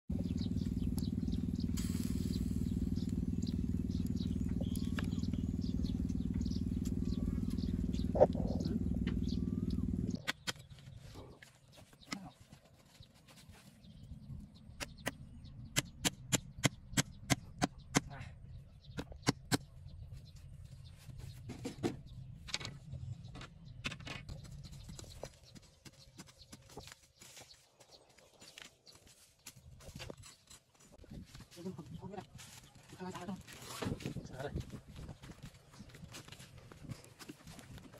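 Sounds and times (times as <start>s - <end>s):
low rumble: 0.1s - 10.2s
small engine droning: 0.1s - 10.3s.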